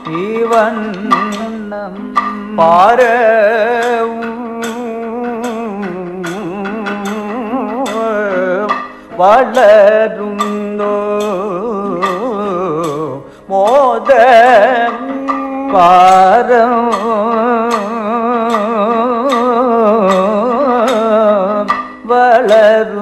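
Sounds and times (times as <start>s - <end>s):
drum strokes: 0.0s - 23.0s
man singing ornamented notes: 0.0s - 23.0s.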